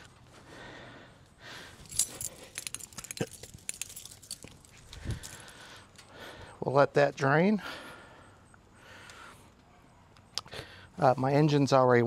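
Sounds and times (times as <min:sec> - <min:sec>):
metallic clicking and jingling: 0:01.8 - 0:05.7.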